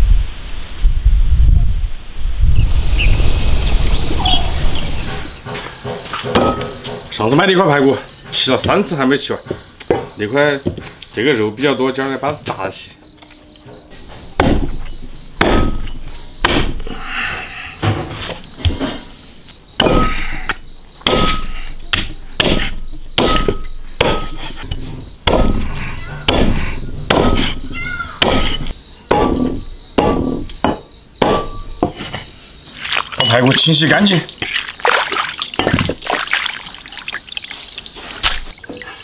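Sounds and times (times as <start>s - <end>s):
crickets chirping: 2.0s - 39.0s
cleaver chopping ribs on board: 14.4s - 14.8s, 16.4s - 16.8s, 21.0s - 24.4s, 25.3s - 25.6s, 26.3s - 27.6s, 28.2s - 32.0s.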